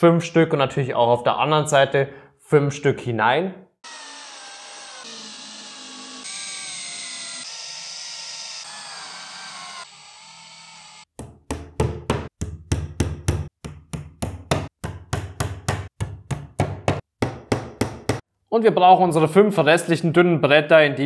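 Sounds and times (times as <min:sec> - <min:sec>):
cordless drill motor whining: 0:03.8 - 0:11.1
hammer tapping wooden dowels: 0:11.2 - 0:18.2.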